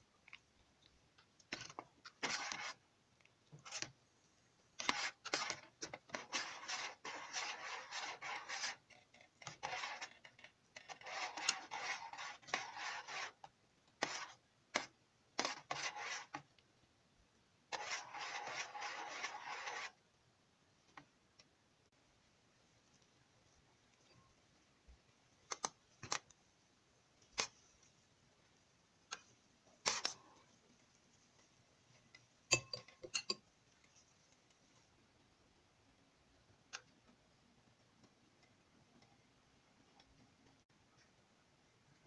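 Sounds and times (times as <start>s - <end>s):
spoon scraping metal pot: 1.5s - 2.8s, 4.8s - 16.4s, 17.7s - 20.0s, 32.5s - 33.4s.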